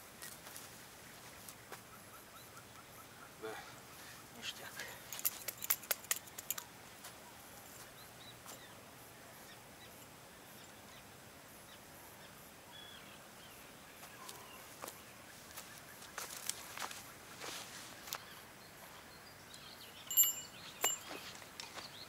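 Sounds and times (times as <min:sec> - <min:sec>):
faint bird chirps: 0:06.5 - 0:16.4.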